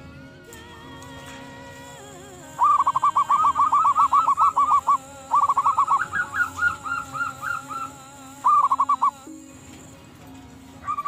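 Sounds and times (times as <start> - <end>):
dove cooing: 2.6 - 9.2, 10.8 - 11.0.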